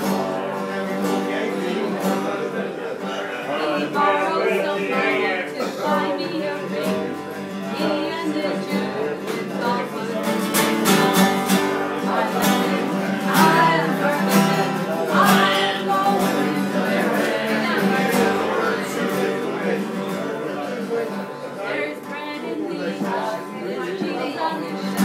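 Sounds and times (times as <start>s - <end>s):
acoustic guitar strumming: 0.0s - 25.0s
voices singing along: 0.0s - 25.0s.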